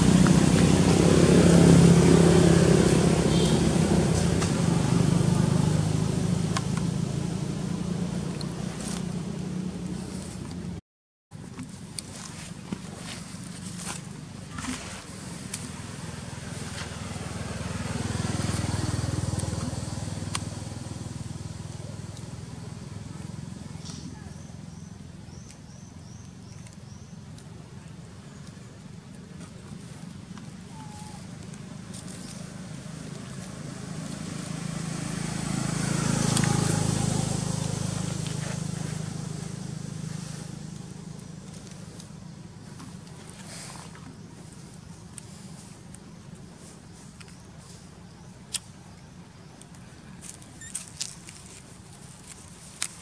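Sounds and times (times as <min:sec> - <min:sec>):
small engine passing by: 0:00.0 - 0:10.4, 0:13.0 - 0:25.0, 0:30.6 - 0:45.8.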